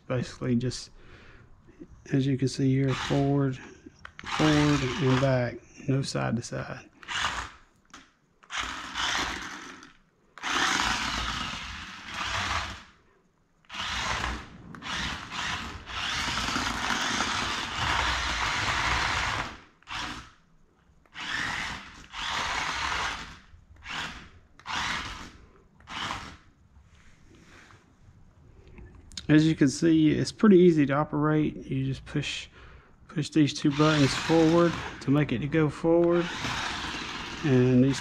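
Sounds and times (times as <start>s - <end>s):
toy car motors whirring: 2.8s - 5.5s, 7.0s - 13.0s, 13.6s - 20.4s, 21.0s - 26.5s, 33.5s - 38.0s.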